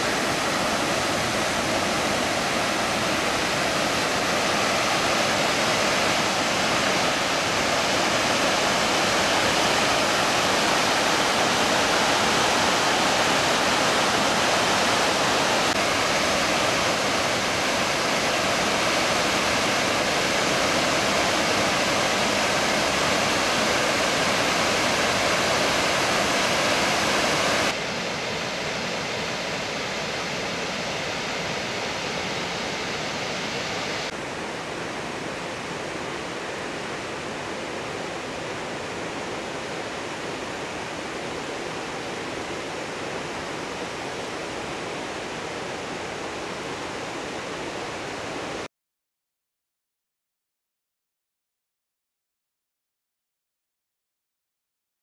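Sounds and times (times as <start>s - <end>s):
waterfall rushing over rocks: 0.0s - 48.7s.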